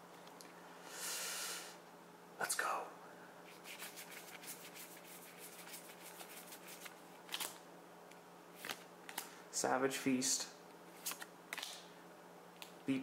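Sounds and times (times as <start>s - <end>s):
cards clicking and rustling: 6.1s - 7.6s, 8.6s - 9.3s
card snap: 11.0s - 11.8s.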